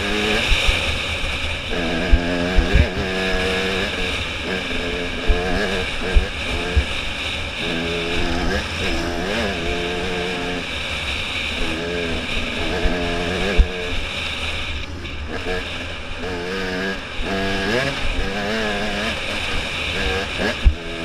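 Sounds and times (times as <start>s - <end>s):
wind rushing over microphone: 0.0s - 10.6s, 11.5s - 15.6s
motorcycle engine revving: 0.0s - 21.0s.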